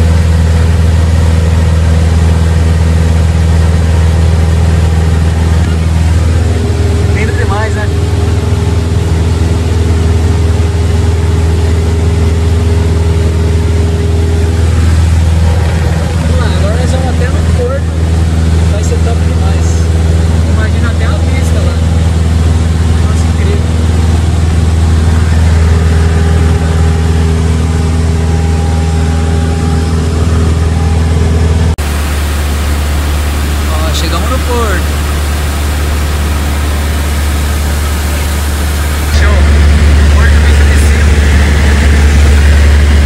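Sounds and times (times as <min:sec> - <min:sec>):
airplane engine drone in cabin: 0:00.0 - 0:43.0
air rushing over airframe: 0:31.8 - 0:43.0.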